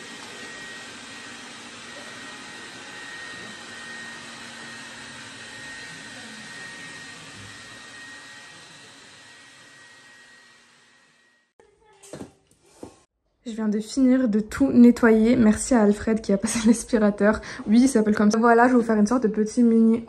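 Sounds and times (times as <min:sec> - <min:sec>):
robot vacuum cleaner whirring: 0:00.0 - 0:11.5.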